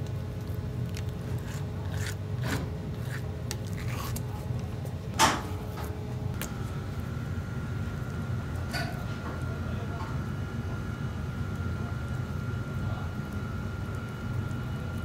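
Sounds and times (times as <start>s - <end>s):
low kitchen hum: 0.0s - 15.0s
knife scraping fish skin: 0.5s - 4.8s.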